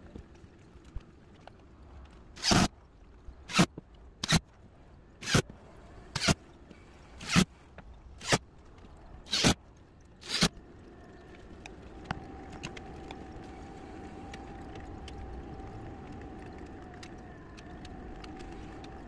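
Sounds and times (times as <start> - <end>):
cordless drill driving screws: 2.4 - 2.7, 7.2 - 7.4, 9.3 - 9.6, 10.2 - 10.5.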